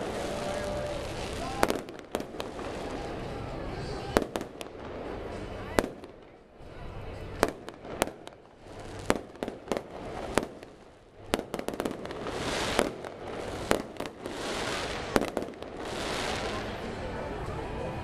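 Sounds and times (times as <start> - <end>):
fireworks pops: 0.0 - 3.0, 7.4 - 16.7
fireworks hiss: 0.0 - 3.4, 7.7 - 17.0
fireworks bangs: 0.0 - 6.4, 7.2 - 17.0.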